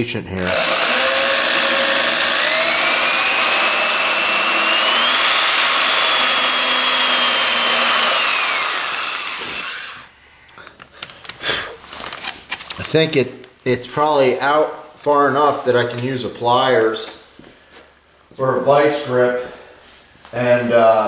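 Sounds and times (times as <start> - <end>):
power drill motor whine: 0.4 - 10.1.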